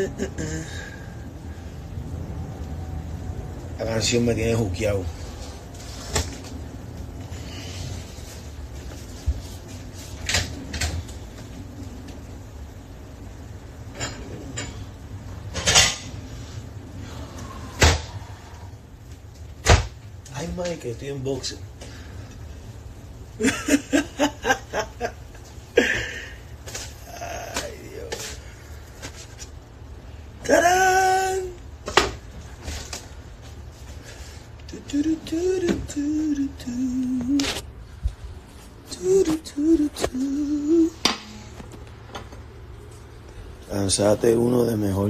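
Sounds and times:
low steady hum: 0.0 - 45.0
dishes clattering: 15.5 - 16.2
man humming a tune: 34.7 - 37.6, 38.9 - 41.1.

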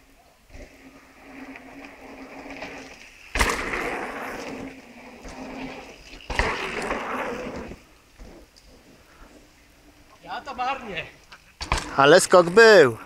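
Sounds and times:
tyres rolling on packed dirt: 0.0 - 13.0
bike landing thumps: 2.5 - 8.4, 11.6 - 12.6.

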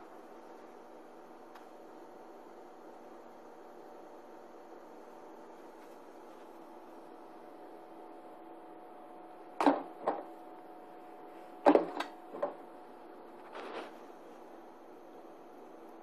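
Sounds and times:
faint steady hum: 0.0 - 16.0
soft scrape: 13.4 - 14.2.

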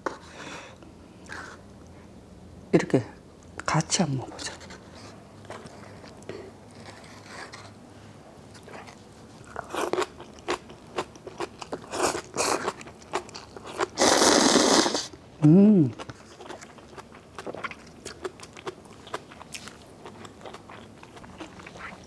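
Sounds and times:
crunchy chewing: 4.4 - 7.8, 8.5 - 15.2, 15.9 - 22.0
slurping noodles: 13.7 - 15.1.

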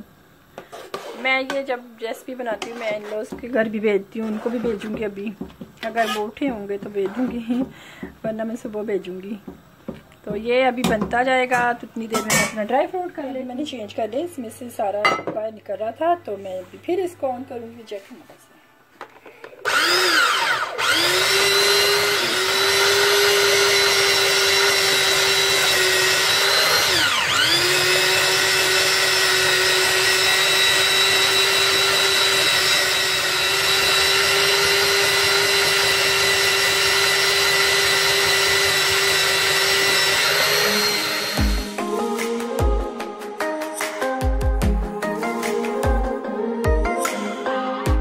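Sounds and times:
electric grater motor whining: 19.6 - 41.8
drum grinding dry fruits: 19.7 - 41.8.

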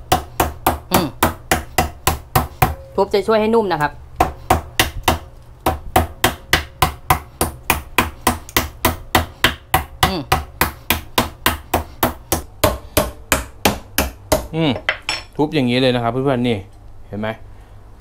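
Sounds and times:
mallet pounding meat on board: 0.0 - 2.8, 4.2 - 14.6.

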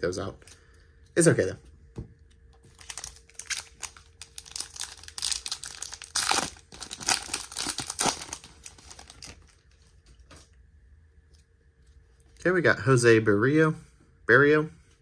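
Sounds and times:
foil wrapper crinkling: 2.7 - 9.9.

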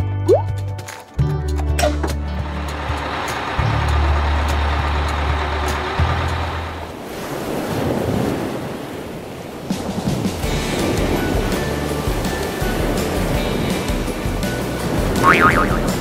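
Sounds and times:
bus engine humming: 1.5 - 7.1, 11.1 - 16.0
ocean waves rushing: 2.4 - 16.0.

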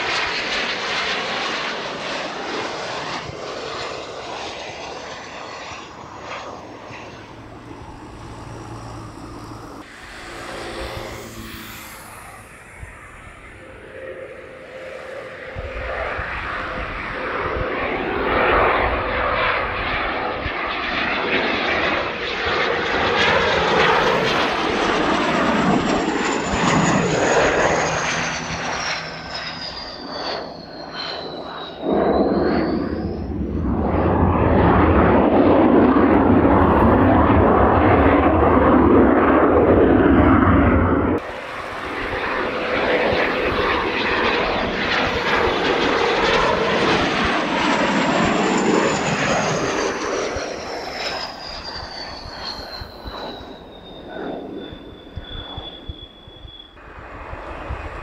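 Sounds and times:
high turbine whine: 0.0 - 58.0
jet engines roaring: 0.0 - 58.0.

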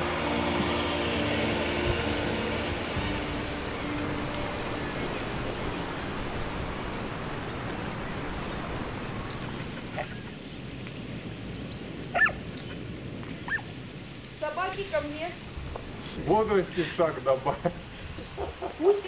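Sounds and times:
rushing background noise: 0.0 - 19.0
dog yelping: 12.1 - 12.8, 13.4 - 13.7.

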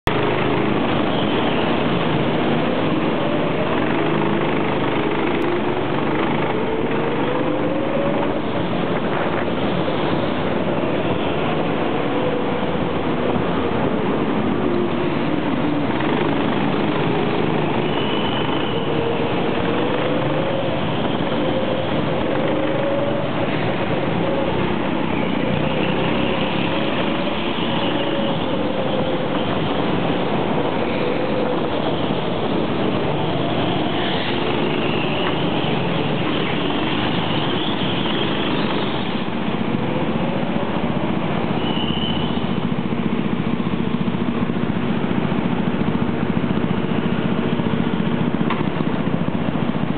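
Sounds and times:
go-kart engine running: 0.1 - 49.9
faint high squeals: 41.5 - 42.6.

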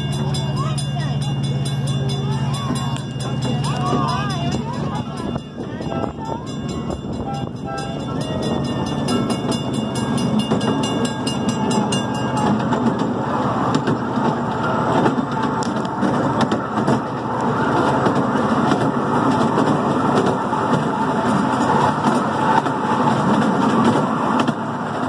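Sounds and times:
crossing signal bell ringing: 0.0 - 13.6
train wheels clattering on rails: 0.0 - 25.0.

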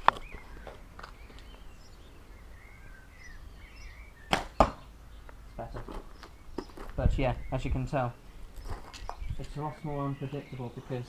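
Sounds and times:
arrow striking target: 4.3 - 4.9.

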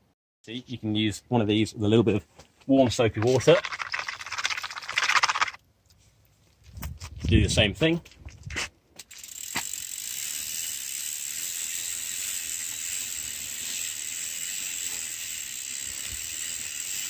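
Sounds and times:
toothbrush scrubbing bicycle chain: 3.2 - 5.6, 9.2 - 17.0
freewheel ticking: 9.1 - 17.0.

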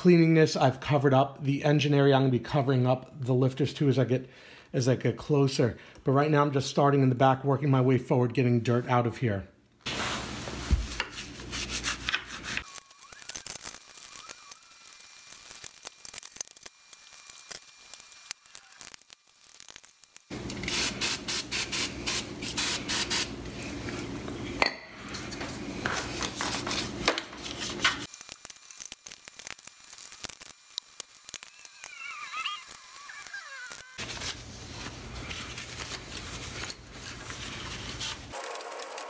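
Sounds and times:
brush scrubbing: 9.9 - 12.7
spraying with low hum: 9.9 - 24.1.

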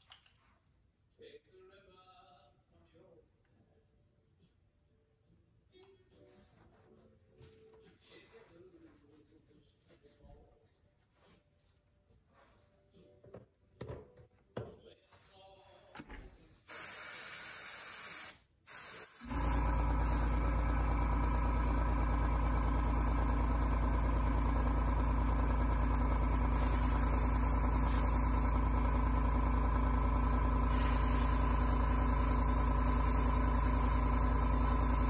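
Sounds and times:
air compressor humming: 16.1 - 35.0
airbrush air hiss: 16.7 - 20.3, 26.5 - 28.5, 30.7 - 35.0.

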